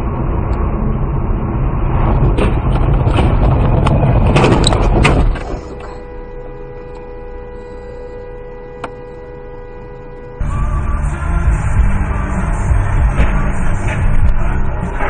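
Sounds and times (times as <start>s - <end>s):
tyre and road noise: 0.0s - 6.1s, 10.4s - 15.0s
quiet steady hum: 3.7s - 15.0s.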